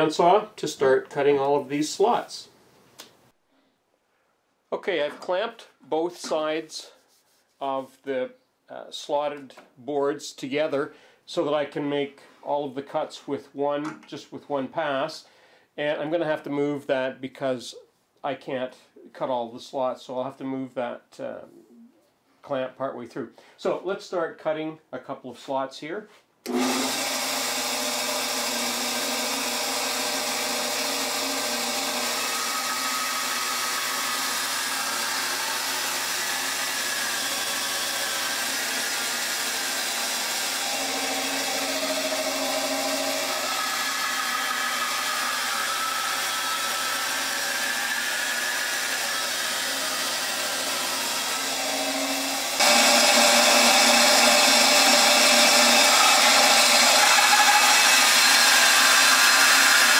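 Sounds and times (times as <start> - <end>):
bandsaw cutting wood: 26.5 - 59.9.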